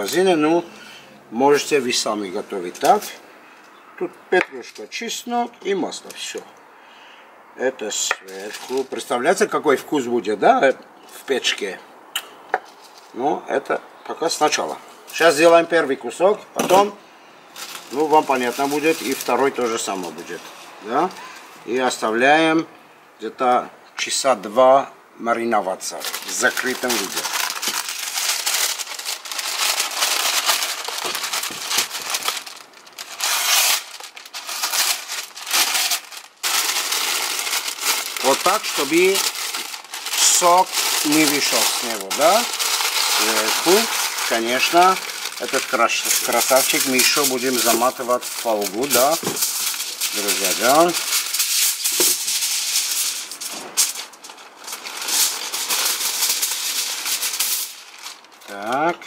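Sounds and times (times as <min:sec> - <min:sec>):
parchment paper crinkling: 0:08.3 - 0:09.1, 0:17.5 - 0:21.4, 0:25.9 - 0:59.0
knife slitting paper: 0:26.0 - 0:54.1.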